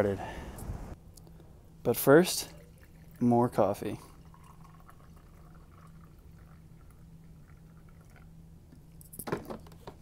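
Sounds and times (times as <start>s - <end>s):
steady low hum: 0.0s - 10.0s
coffee trickling into mug: 3.9s - 8.3s.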